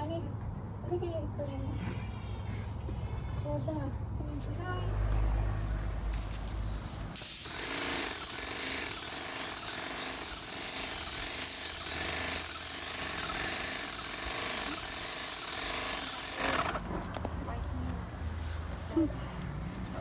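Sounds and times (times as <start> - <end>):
paint sprayer hissing: 7.2 - 16.8.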